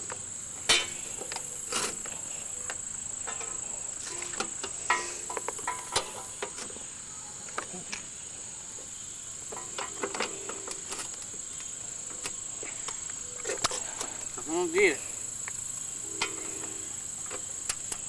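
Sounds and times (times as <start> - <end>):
crickets chirping: 0.0 - 18.0
clicks and clanks of wiring work: 0.7 - 6.7, 9.5 - 11.3.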